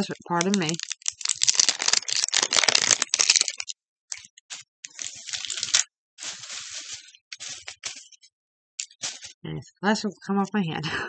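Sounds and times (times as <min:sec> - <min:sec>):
plastic packaging crinkling: 0:00.0 - 0:09.4.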